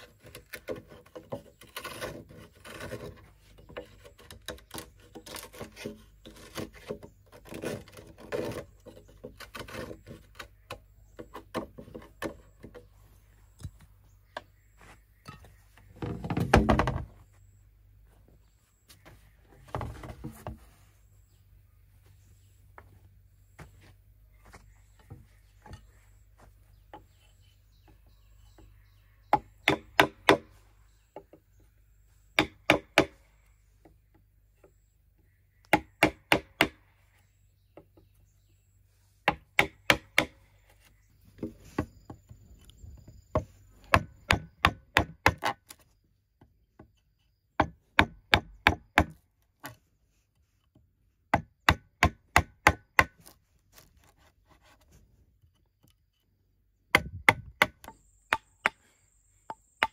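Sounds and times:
blade chopping bamboo: 39.2s - 40.4s, 43.4s - 45.8s, 51.4s - 54.2s.

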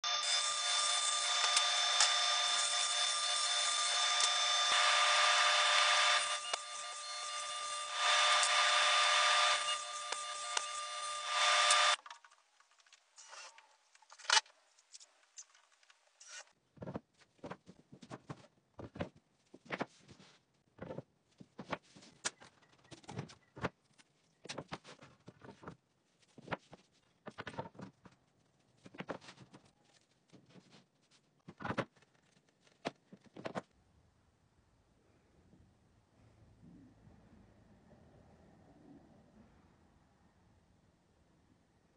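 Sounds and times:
table saw running: 0.0s - 12.0s.

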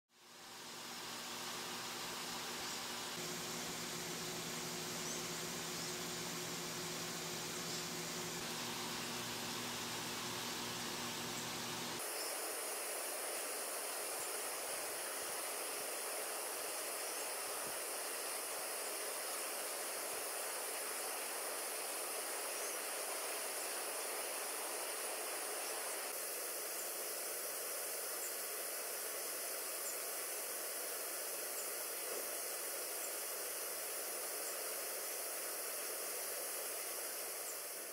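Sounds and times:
garden sprinkler hissing: 0.2s - 37.9s.

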